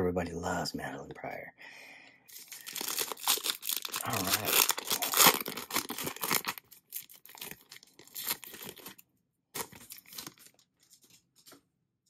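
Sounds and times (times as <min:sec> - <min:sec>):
foil wrapper tearing and crinkling: 0:02.3 - 0:09.0, 0:09.6 - 0:11.1.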